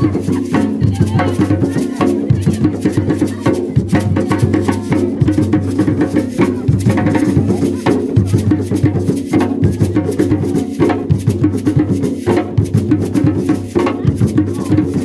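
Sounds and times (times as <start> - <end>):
hand drums playing: 0.0 - 15.0
lead drum playing: 0.0 - 15.0
rhythm drums: 0.0 - 15.0.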